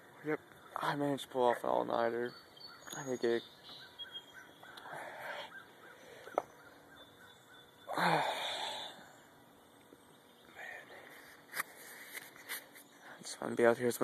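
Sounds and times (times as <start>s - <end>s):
person's breathy vocal sound: 7.9s - 9.0s.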